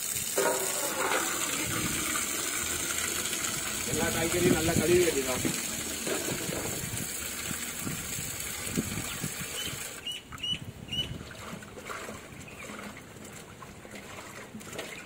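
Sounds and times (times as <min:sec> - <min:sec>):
tap water running into pot: 0:00.0 - 0:10.0
water splashing and sloshing: 0:00.0 - 0:15.0.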